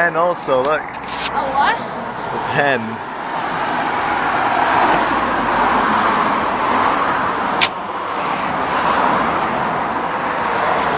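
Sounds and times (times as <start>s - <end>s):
road traffic rush: 0.0s - 10.9s
sharp click: 7.6s - 7.8s.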